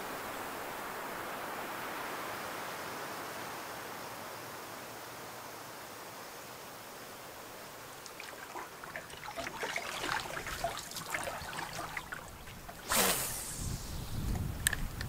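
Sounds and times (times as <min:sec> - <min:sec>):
water trickling and lapping: 0:07.9 - 0:14.8
wind rumble on microphone: 0:12.0 - 0:15.0.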